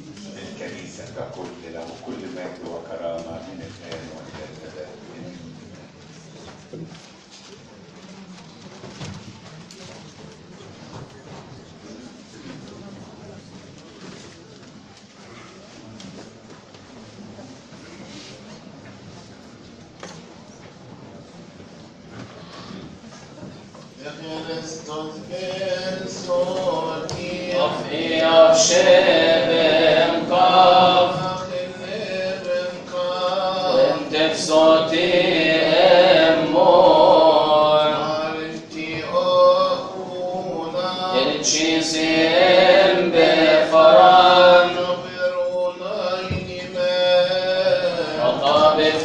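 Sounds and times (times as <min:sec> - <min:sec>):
men chanting: 0:24.1 - 0:49.0.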